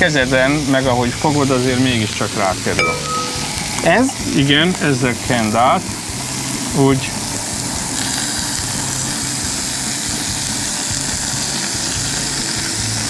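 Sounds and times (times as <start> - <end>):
shrimp sizzling on grill: 0.0 - 13.0.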